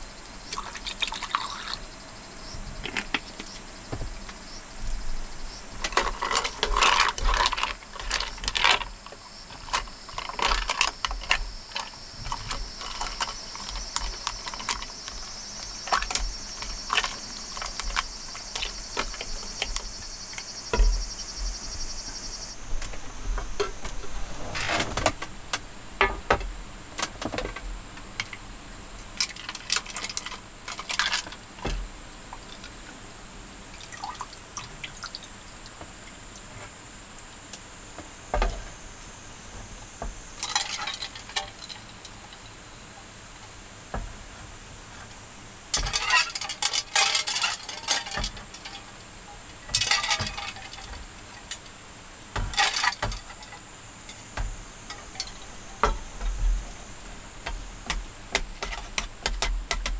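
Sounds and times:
faint high-pitched buzz: 1.4s - 29.0s.

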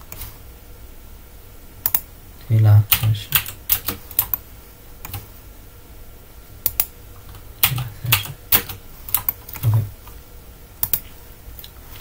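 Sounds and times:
keyboard typing: 2.9s - 4.4s, 5.0s - 5.3s, 6.6s - 9.9s, 10.8s - 11.1s.

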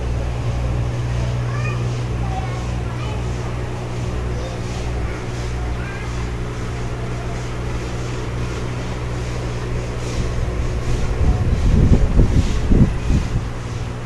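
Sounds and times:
aquarium air pump humming: 0.0s - 14.0s
low rumbling bumps: 9.4s - 14.0s.

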